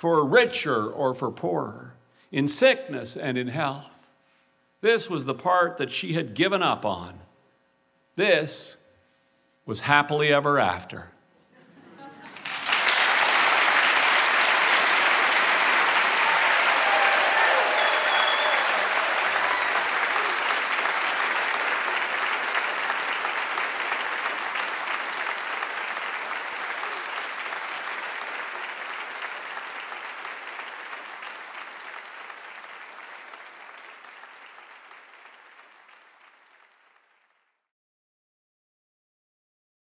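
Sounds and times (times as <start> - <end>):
audience applauding: 12.2 - 37.4.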